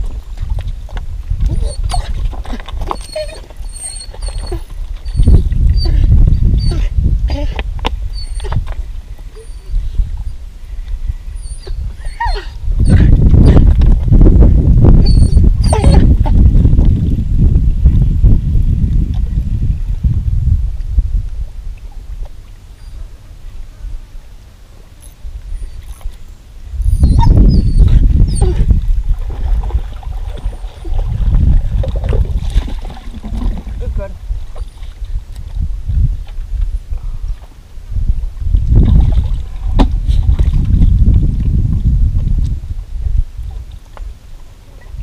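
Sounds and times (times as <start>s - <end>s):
wind rumbling on microphone: 0.0s - 45.0s
dog whining: 1.5s - 8.6s, 9.3s - 9.9s, 11.4s - 13.6s, 15.0s - 16.2s, 26.8s - 28.7s.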